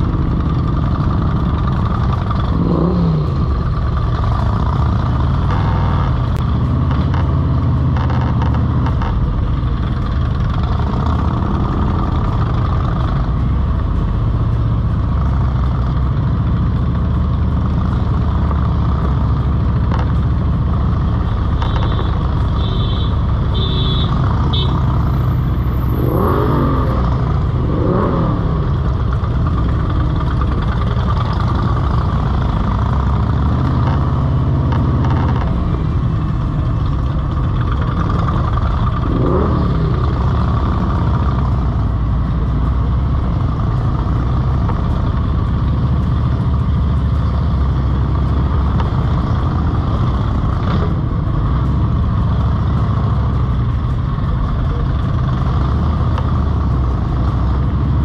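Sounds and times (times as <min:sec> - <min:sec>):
motorcycle engine revs: 0:00.0 - 0:09.3, 0:23.5 - 0:36.5, 0:37.2 - 0:42.2
motorcycles rumbling: 0:00.0 - 0:58.0.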